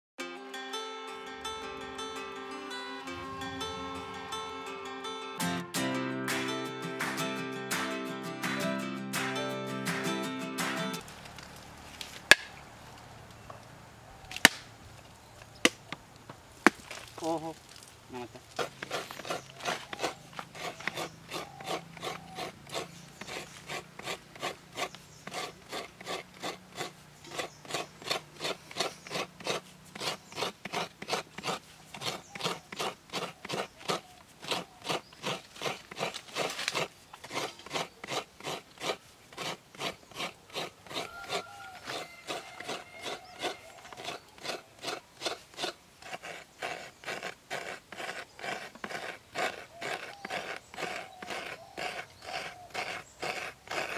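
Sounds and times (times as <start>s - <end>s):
coconut rasping on metal scraper: 18.4s - 53.9s.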